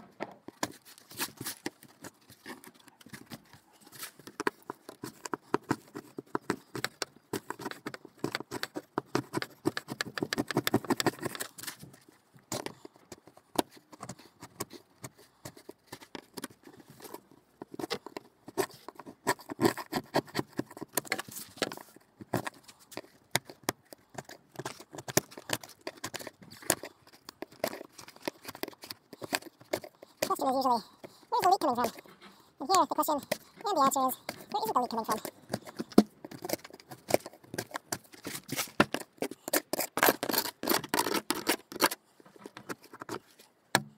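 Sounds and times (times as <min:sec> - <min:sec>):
knife scraping sealant: 0:00.6 - 0:43.4.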